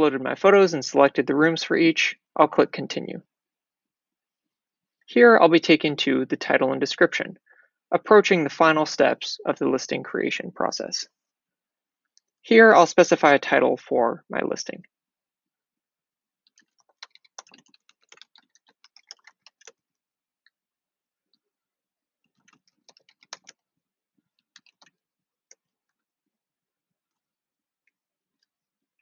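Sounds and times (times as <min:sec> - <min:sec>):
computer keyboard typing: 0:16.5 - 0:19.9, 0:22.3 - 0:23.6, 0:24.4 - 0:25.6.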